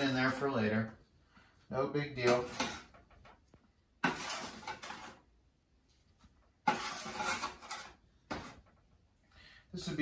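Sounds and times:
spatula scraping baking sheet: 0:00.0 - 0:00.7, 0:02.1 - 0:03.0, 0:04.0 - 0:05.3, 0:06.6 - 0:08.6.

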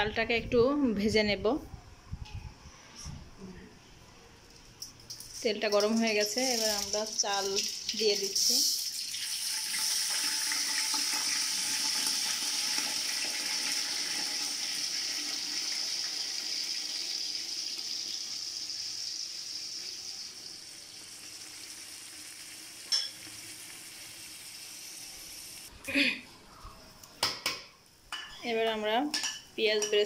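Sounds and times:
rice sizzling in hot oil: 0:05.8 - 0:25.7.

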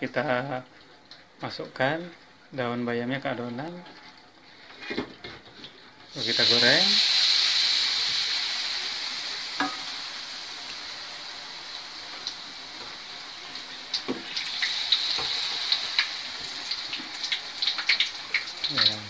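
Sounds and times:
food sizzling in hot oil: 0:06.1 - 0:19.0.

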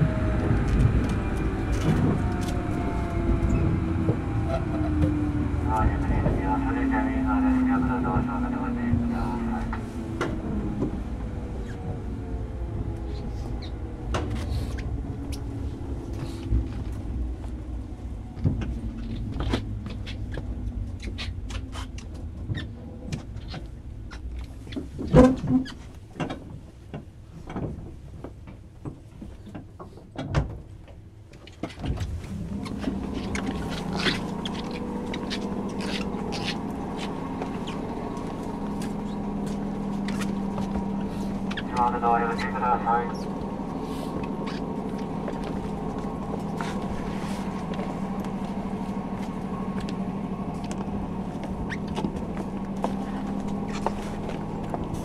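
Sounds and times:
train motor hum: 0:00.0 - 0:26.0, 0:31.8 - 0:55.0.

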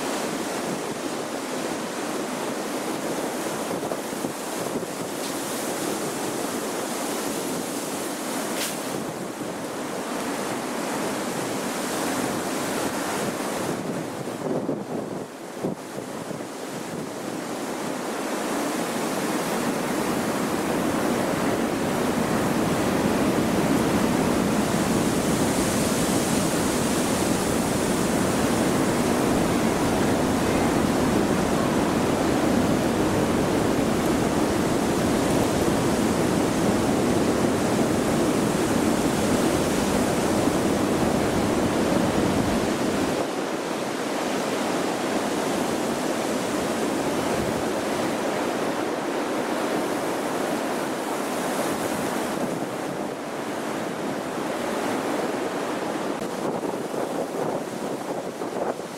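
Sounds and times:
strong wind rushing: 0:18.8 - 0:48.8, 0:51.3 - 0:58.9.

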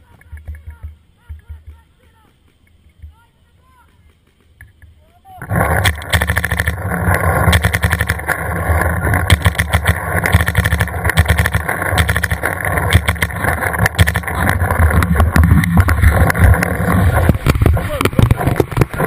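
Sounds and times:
steady low hum: 0:00.8 - 0:19.0
paintball markers firing: 0:05.4 - 0:19.0.

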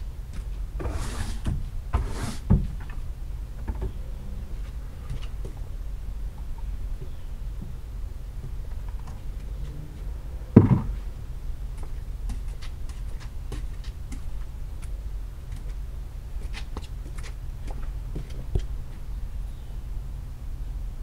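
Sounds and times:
steady low rumble: 0:00.0 - 0:00.8, 0:01.4 - 0:21.0
loud thump: 0:10.6 - 0:11.0
sandalled footsteps on wet wood: 0:11.7 - 0:15.8.

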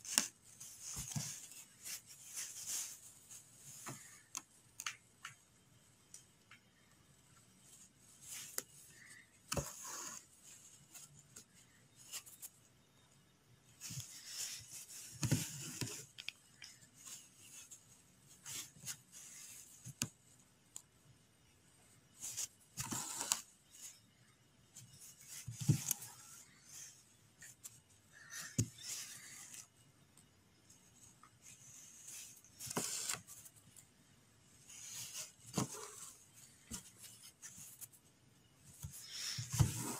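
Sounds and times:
needle and thread drawn through cloth: 0:07.5 - 0:12.7, 0:13.7 - 0:20.4, 0:22.1 - 0:24.1, 0:30.7 - 0:33.9, 0:34.5 - 0:39.9.

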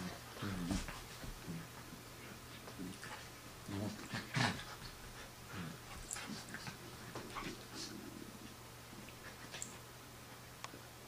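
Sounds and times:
dogs scuffling: 0:00.4 - 0:05.2.

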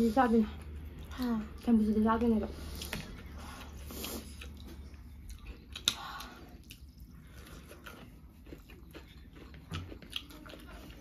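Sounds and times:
person chewing: 0:02.6 - 0:11.0.

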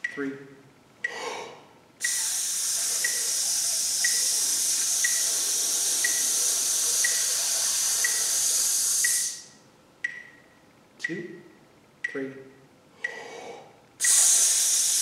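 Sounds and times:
man hissing through teeth: 0:02.0 - 0:09.5, 0:14.0 - 0:15.0
light ticking: 0:02.0 - 0:11.2.

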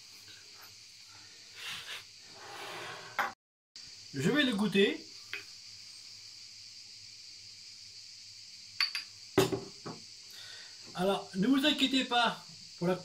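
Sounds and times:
glass clinks: 0:08.8 - 0:09.6
knock: 0:09.4 - 0:10.0.

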